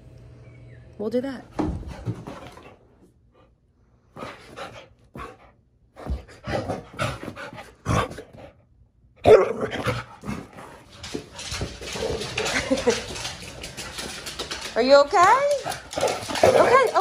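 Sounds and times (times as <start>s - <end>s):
dog panting and huffing: 4.1s - 8.6s.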